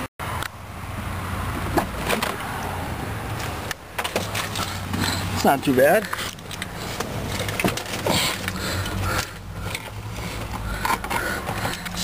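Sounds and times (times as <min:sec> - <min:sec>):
car engine idling: 0:03.8 - 0:12.0.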